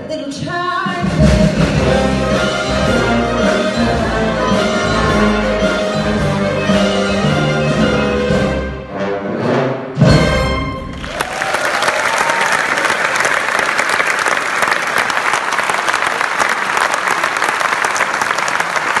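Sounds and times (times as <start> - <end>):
audience applauding: 10.9 - 19.0.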